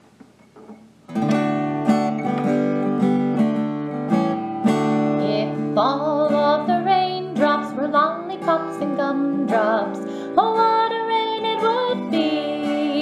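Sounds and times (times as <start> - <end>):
acoustic guitar strumming chords: 0.6 - 13.0
woman singing: 5.2 - 13.0.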